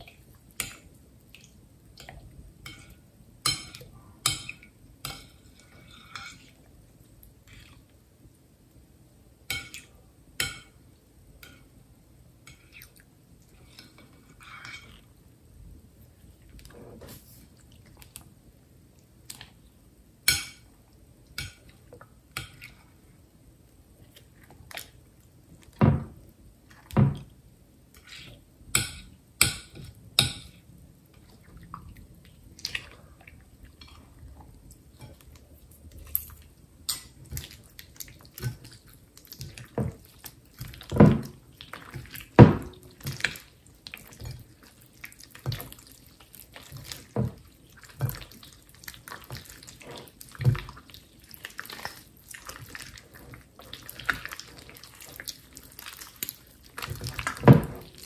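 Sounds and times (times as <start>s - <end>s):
slime squelching in glass bowl: 34.9s - 58.0s.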